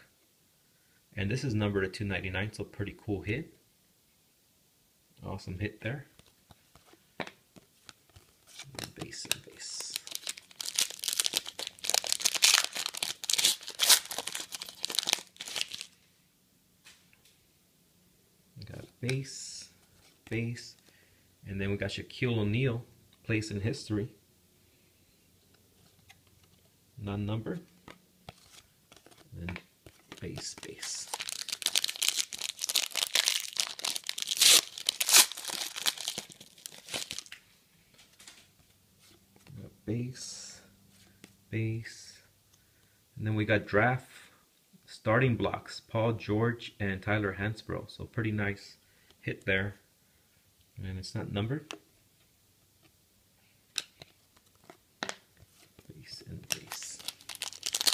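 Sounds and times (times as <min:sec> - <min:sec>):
foil wrapper crinkling: 0:08.5 - 0:16.0, 0:29.9 - 0:37.4, 0:56.5 - 0:57.9.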